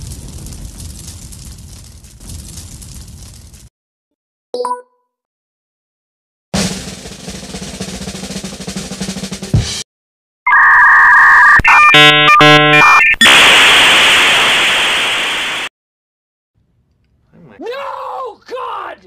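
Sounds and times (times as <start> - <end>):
snare drum roll: 6.6 - 9.8
choppy electronic tones: 10.5 - 13.2
loud hiss: 13.2 - 15.7.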